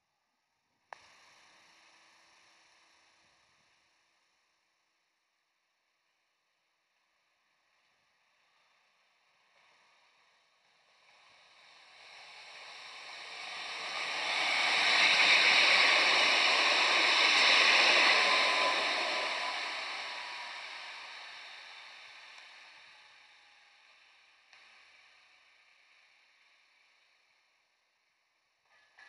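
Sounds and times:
tram passing on track: 11.7 - 22.2.

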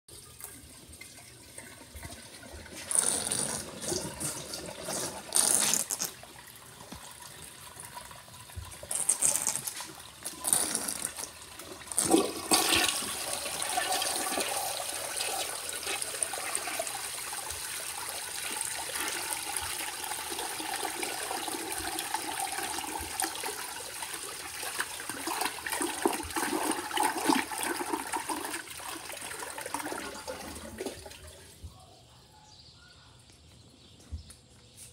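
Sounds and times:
toilet flushing: 0.2 - 31.6.

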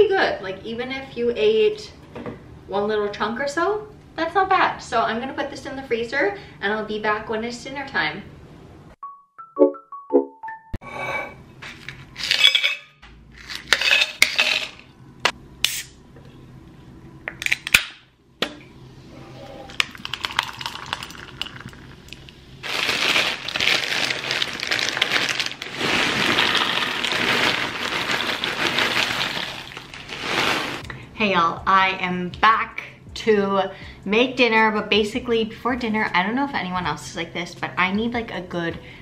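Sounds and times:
soda pouring with faint hiss: 19.6 - 22.4, 25.8 - 30.8
popcorn rattling into bowl: 22.6 - 30.8.

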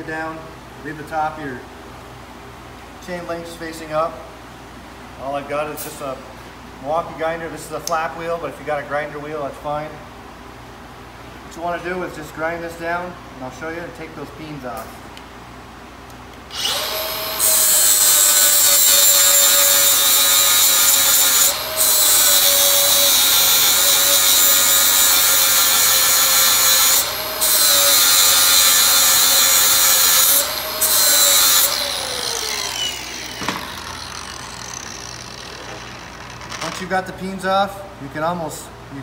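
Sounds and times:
grinder motor winding down: 16.5 - 17.6, 30.4 - 36.8
angle grinder grinding metal: 16.5 - 36.9.

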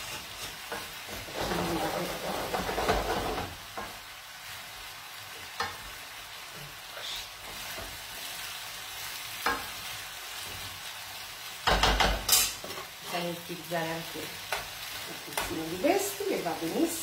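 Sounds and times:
pasta sizzling in a frying pan: 0.0 - 17.0
utensil knocking against pan: 11.6 - 12.4.

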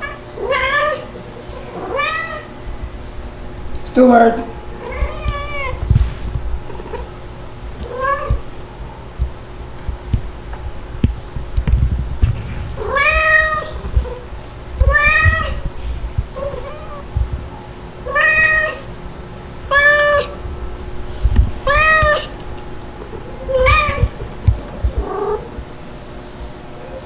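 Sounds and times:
kitten meowing: 21.6 - 22.3, 23.4 - 24.2.

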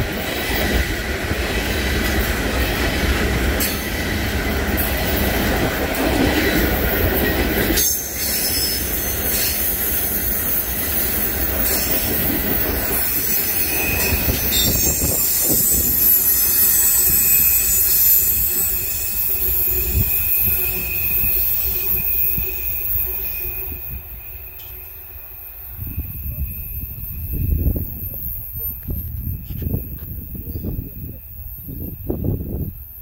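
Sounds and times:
train wheels rumbling on rail: 0.0 - 33.0
train wheel squeal: 1.7 - 33.0.

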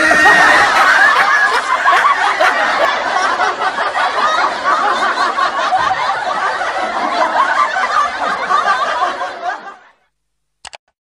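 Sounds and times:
people laughing and snickering: 0.0 - 10.0
quick clicks: 10.6 - 10.8.

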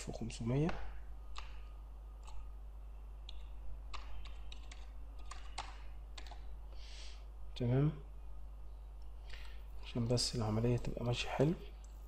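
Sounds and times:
low electrical hum: 0.0 - 12.0
computer keyboard key clicks: 3.2 - 6.4.

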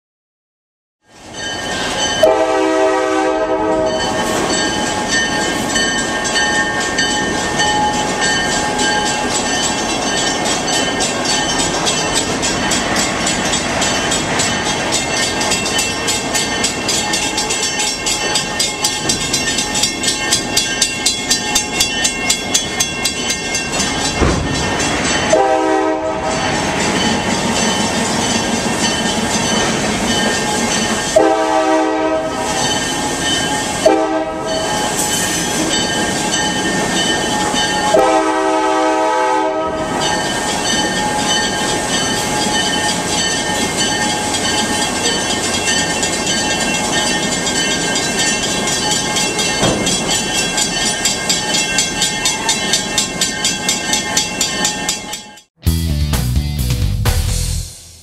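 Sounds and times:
train rumble and wheel noise: 1.0 - 55.6
locomotive horn: 2.2 - 4.1, 25.3 - 26.4, 31.1 - 32.6, 33.8 - 34.7, 37.9 - 39.9.

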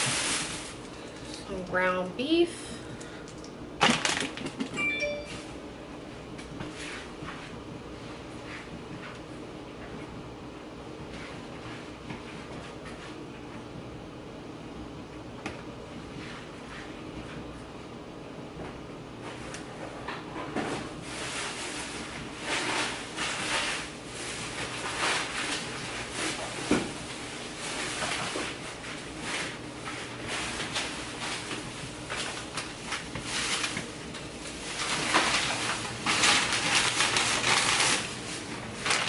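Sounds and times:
plastic bags rustling: 0.0 - 1.4, 3.8 - 4.8, 21.0 - 39.0.

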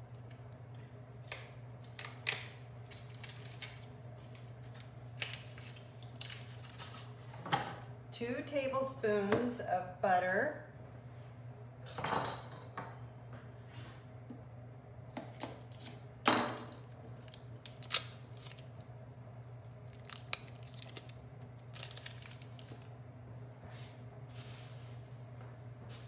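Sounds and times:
low steady hum: 0.0 - 26.0
wrapper crinkling and tearing: 1.8 - 7.3, 16.8 - 19.0, 19.6 - 22.9.

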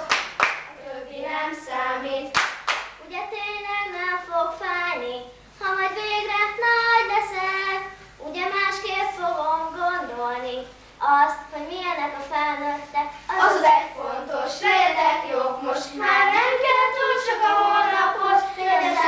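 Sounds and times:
children singing together: 11.6 - 19.0.

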